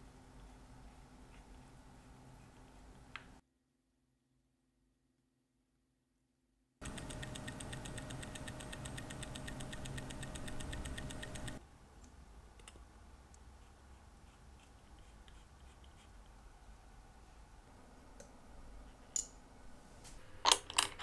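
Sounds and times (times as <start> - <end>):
tweezers clicking: 6.8 - 11.6
watch ticking fast: 6.8 - 11.6.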